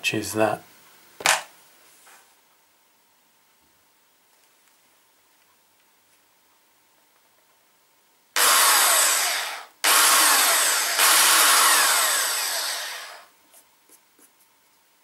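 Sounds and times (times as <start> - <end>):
electric drill reaming tyre: 8.4 - 13.3.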